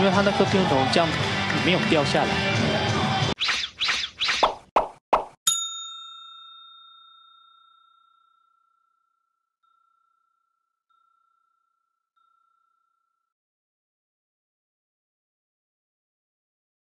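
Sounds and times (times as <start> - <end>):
bell ding ringing: 5.5 - 13.2.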